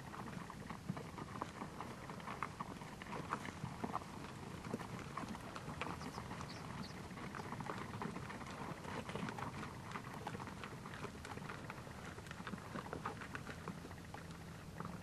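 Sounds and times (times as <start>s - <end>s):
hooves on gravelly ground: 0.0s - 15.0s.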